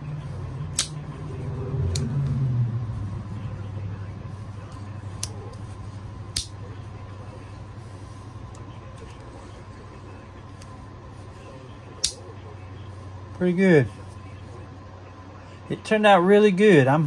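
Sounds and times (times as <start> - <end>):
steady low hum: 0.0 - 17.0
knife blades clicking into place: 0.7 - 1.0.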